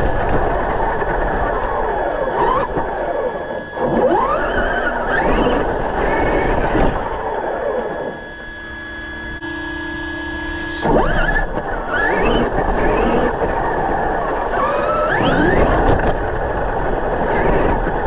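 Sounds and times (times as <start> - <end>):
electric motor whining: 0.0 - 18.0.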